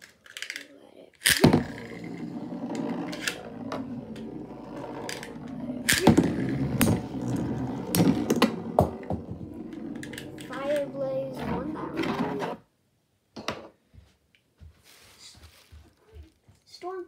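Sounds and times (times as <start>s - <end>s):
spinning top launch: 1.2s - 12.6s
spinning tops whirring: 1.3s - 12.6s.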